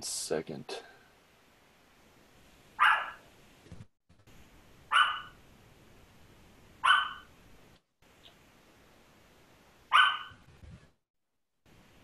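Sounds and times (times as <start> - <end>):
dog barking: 2.8 - 3.2, 4.9 - 5.4, 6.8 - 7.3, 9.9 - 10.4.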